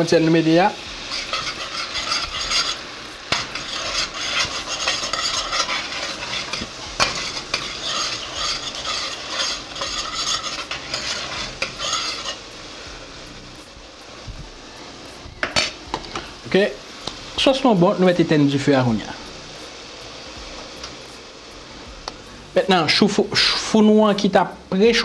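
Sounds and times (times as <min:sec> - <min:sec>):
light sizzle: 0:00.0 - 0:25.0
utensil scraping metal pan: 0:01.0 - 0:12.5.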